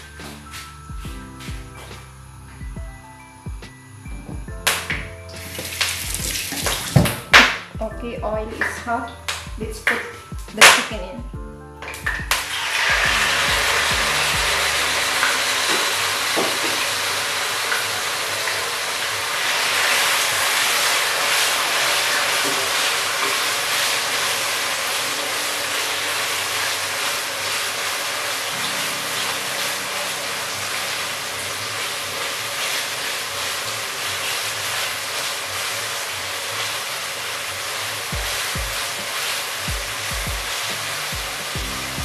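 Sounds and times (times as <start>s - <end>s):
chicken sizzling in oil: 4.7s - 7.7s, 12.0s - 42.0s.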